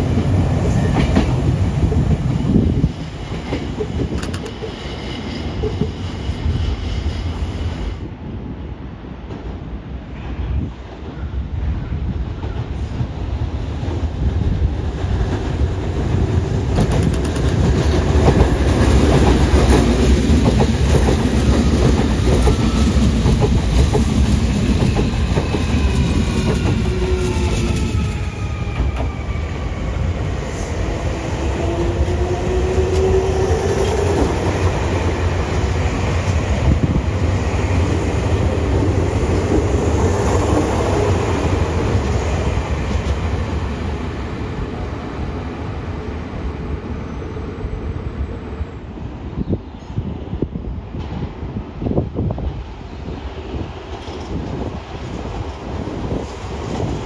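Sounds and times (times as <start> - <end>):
train wheels clacking over rail joints: 16.6 - 27.8.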